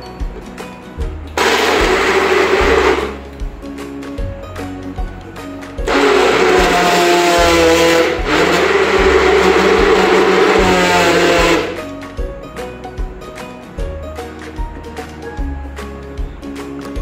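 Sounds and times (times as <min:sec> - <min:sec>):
blender running: 0:01.4 - 0:03.2, 0:05.9 - 0:11.8.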